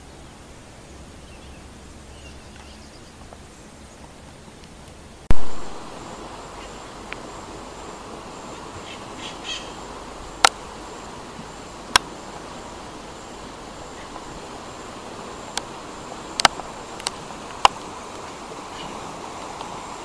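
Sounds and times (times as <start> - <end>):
steady background hiss: 0.0 - 20.0
bird chirps: 0.2 - 4.1, 8.8 - 9.8
sharp clicks: 16.4 - 17.9.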